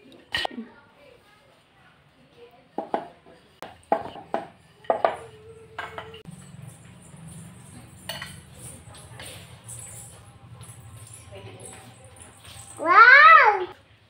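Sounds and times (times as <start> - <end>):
spoon clinking against china bowl: 3.5 - 12.8.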